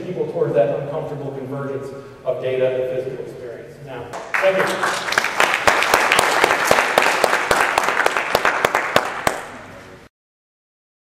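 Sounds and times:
audience applauding: 0:04.2 - 0:09.8.

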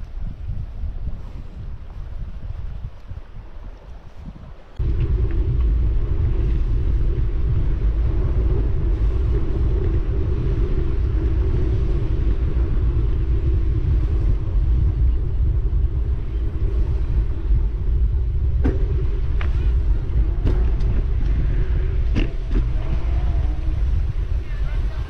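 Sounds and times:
wind buffeting microphone: 0:00.0 - 0:25.0
faint steady hum: 0:04.8 - 0:25.0.

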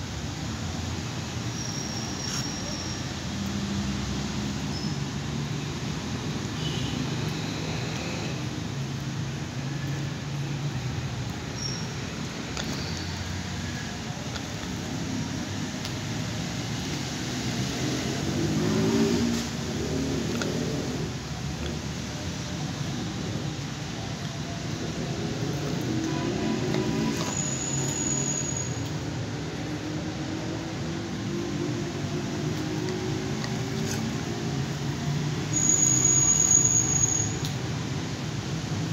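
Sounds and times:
high thin whistle: 0:27.3 - 0:28.8, 0:35.5 - 0:37.4.

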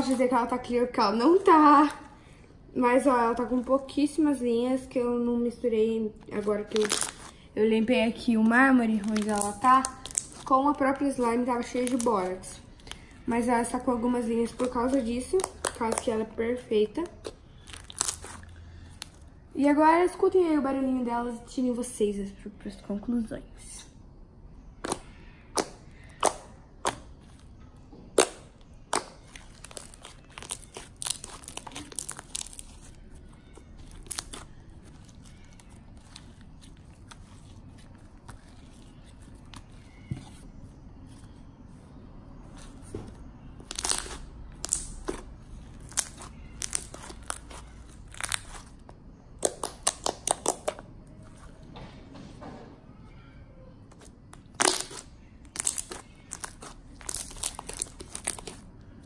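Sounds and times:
slime squished by hand: 0:28.1 - 0:40.0, 0:43.6 - 0:50.8, 0:53.9 - 0:58.7.

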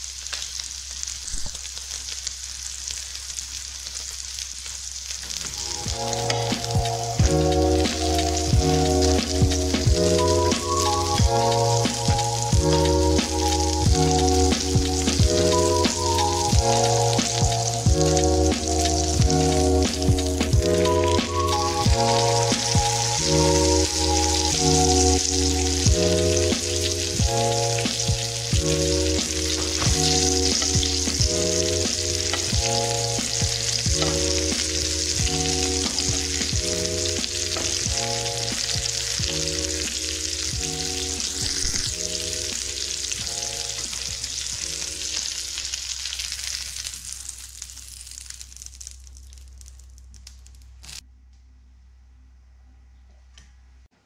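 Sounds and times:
fish sizzling in a pan: 0:00.0 - 0:51.0
plucked background music: 0:05.5 - 0:45.6.

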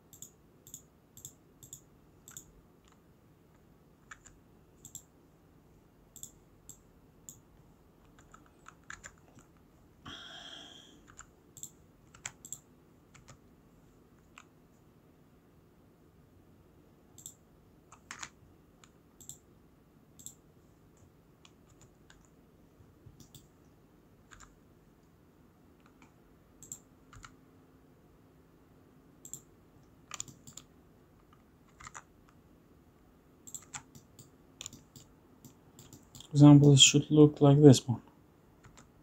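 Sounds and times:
faint steady hum: 0:00.0 - 0:39.0
mouse and keyboard clicks: 0:00.1 - 0:05.1, 0:06.2 - 0:07.4, 0:08.0 - 0:09.6, 0:11.0 - 0:13.4, 0:14.2 - 0:14.5, 0:17.2 - 0:19.4, 0:24.3 - 0:24.6, 0:25.8 - 0:27.4, 0:29.2 - 0:32.4, 0:33.4 - 0:36.3.

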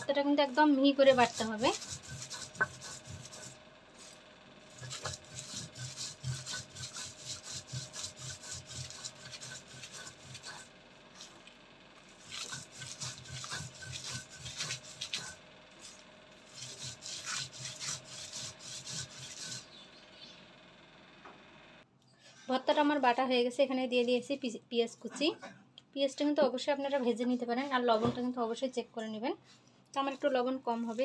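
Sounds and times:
stone roller grinding on stone: 0:00.0 - 0:11.4, 0:12.0 - 0:19.9, 0:30.0 - 0:31.0.

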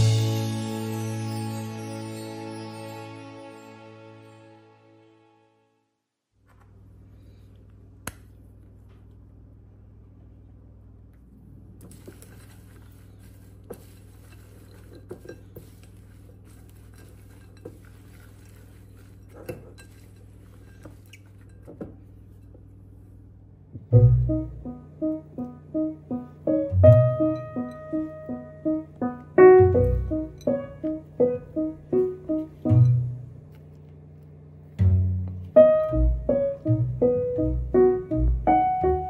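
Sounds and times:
music: 0:00.0 - 0:06.0, 0:23.9 - 0:33.2, 0:34.8 - 0:39.0
spatula scraping glass bowl: 0:11.9 - 0:21.7.

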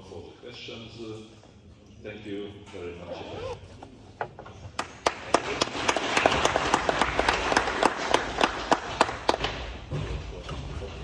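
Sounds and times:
audience applauding: 0:04.8 - 0:09.6
close clapper clapping: 0:04.8 - 0:09.8.

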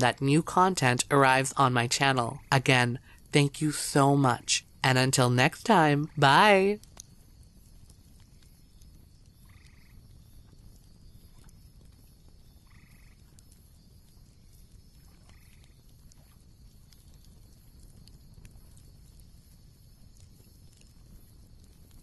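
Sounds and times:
frog croaking: 0:00.0 - 0:03.1, 0:09.4 - 0:10.0, 0:12.6 - 0:13.3, 0:15.1 - 0:15.8
small crackles: 0:03.0 - 0:03.4, 0:04.6 - 0:22.0.

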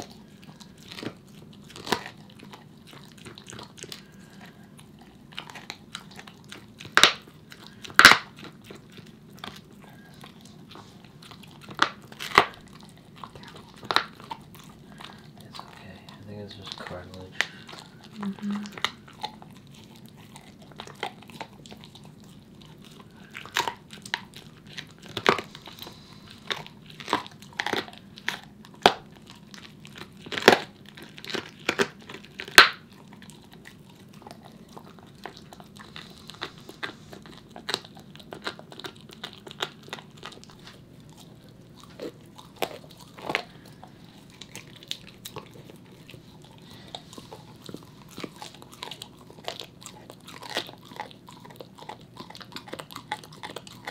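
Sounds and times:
dog crunching on a bone: 0:00.0 - 0:53.9.

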